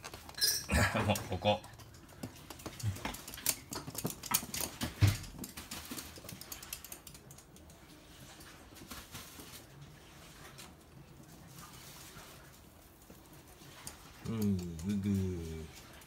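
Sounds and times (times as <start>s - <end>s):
dog claws clicking on hard floor: 1.1s - 9.5s.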